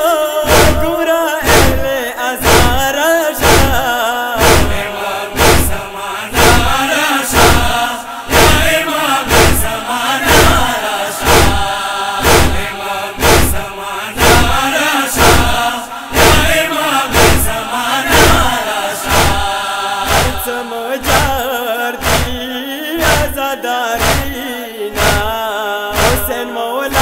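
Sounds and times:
voices chanting a lament: 0.0 - 27.0
rhythmic chest-beating: 0.5 - 27.0.

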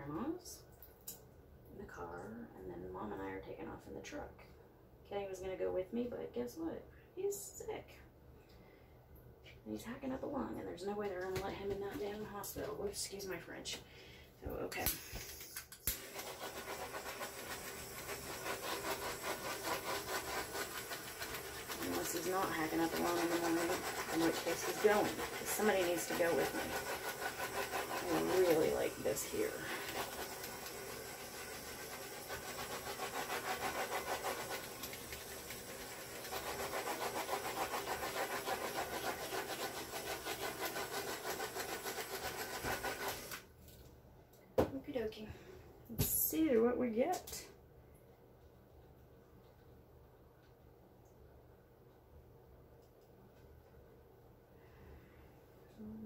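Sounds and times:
electric air blower hissing: 15.9 - 20.4.

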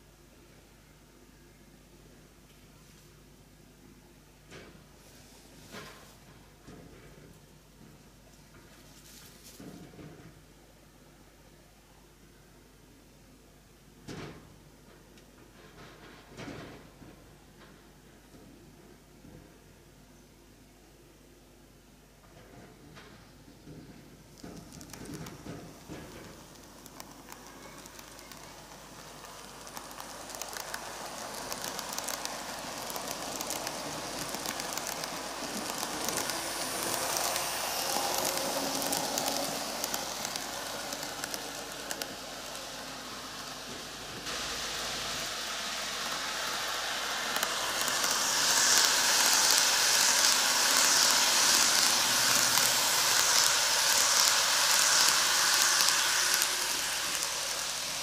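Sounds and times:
model train wheels clicking: 24.3 - 58.0
light motor whir: 24.6 - 58.0.

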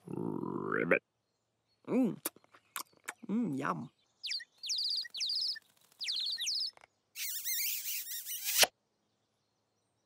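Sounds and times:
noisy bird twittering: 1.2 - 10.0
cartoon birds tweeting: 2.1 - 8.7.

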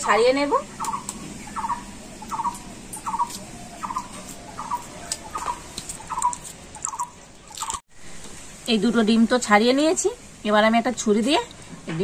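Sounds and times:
eggshell being peeled: 4.2 - 7.8.

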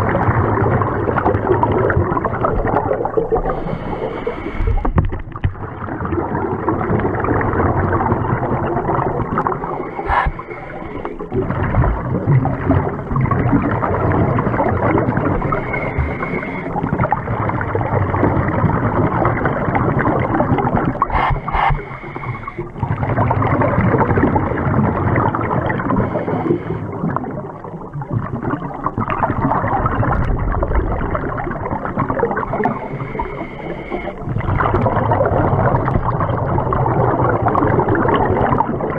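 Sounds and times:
regulator bubbles: 0.0 - 38.9
underwater gurgling rumble: 0.0 - 38.9.

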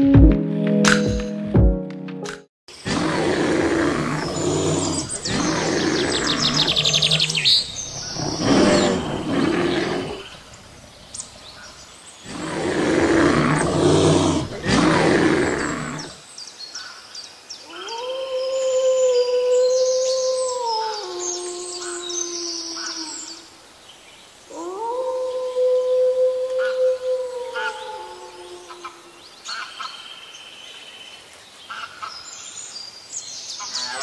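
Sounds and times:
small birds chirping faintly: 2.7 - 34.0
bear growling: 2.8 - 10.5, 12.2 - 16.2
wolf howling: 2.9 - 10.3, 12.3 - 16.2, 17.7 - 23.5, 24.5 - 29.2.

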